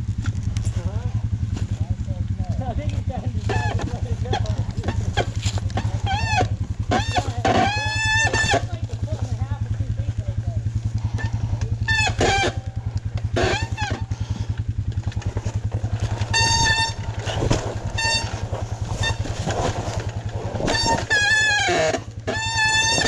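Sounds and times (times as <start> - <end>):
dirt bike engine idling: 0.0 - 23.0
high brake squeals: 16.1 - 19.8.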